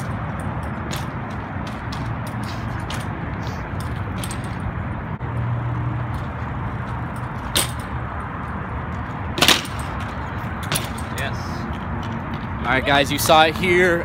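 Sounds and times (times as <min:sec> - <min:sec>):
bike striking concrete ledge: 0:00.0 - 0:03.1, 0:03.8 - 0:04.6, 0:07.1 - 0:08.0, 0:09.3 - 0:11.4
bike riding on asphalt: 0:00.0 - 0:14.0
traffic: 0:00.0 - 0:14.0
wind: 0:00.0 - 0:14.0.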